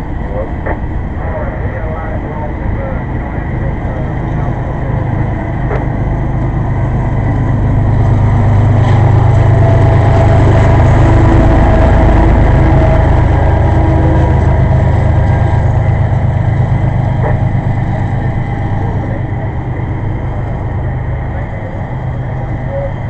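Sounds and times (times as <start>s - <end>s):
diesel locomotive engine rumble: 0.0s - 23.0s
freight train rolling on rails: 0.0s - 23.0s.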